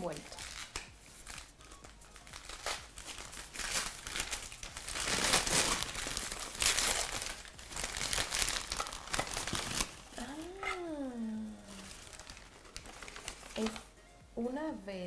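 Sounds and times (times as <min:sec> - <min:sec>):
tissue paper crinkling: 0:00.1 - 0:13.9.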